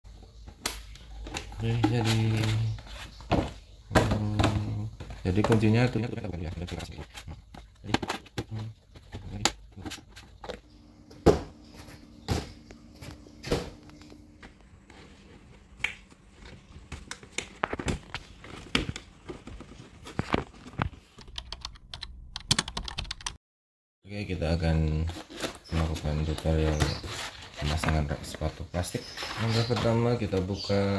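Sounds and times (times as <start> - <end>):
plastic panels clicking and knocking: 0.4 - 10.6.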